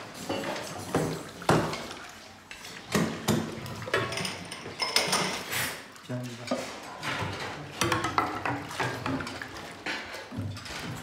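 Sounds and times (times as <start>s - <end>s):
crockery and cutlery clattering: 2.6s - 5.6s, 6.4s - 11.0s.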